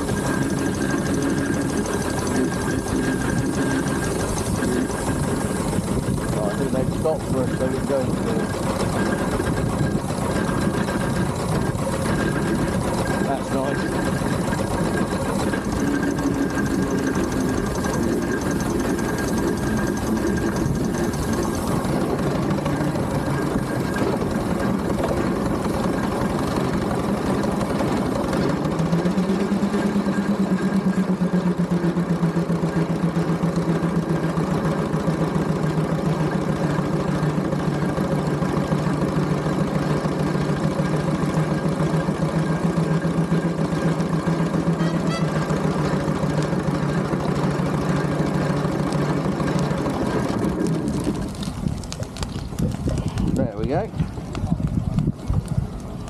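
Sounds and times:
steady low hum: 0:00.0 - 0:34.0
engine running with mechanical knock: 0:00.0 - 0:56.0.

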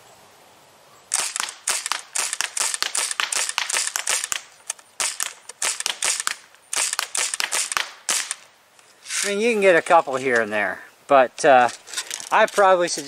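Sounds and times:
air rifle sharp pops: 0:01.1 - 0:08.5.

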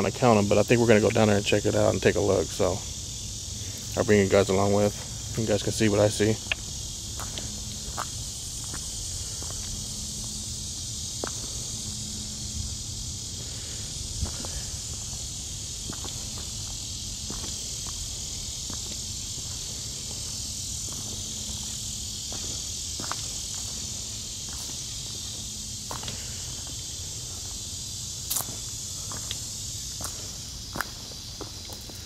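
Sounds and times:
insects buzzing: 0:00.0 - 0:32.0
footsteps on stone path: 0:06.4 - 0:11.9, 0:14.2 - 0:27.6, 0:28.3 - 0:32.0.

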